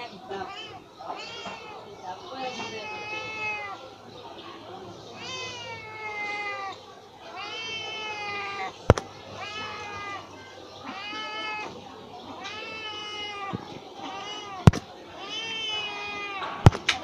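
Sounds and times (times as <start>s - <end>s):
kitten meowing: 12.4s - 16.8s.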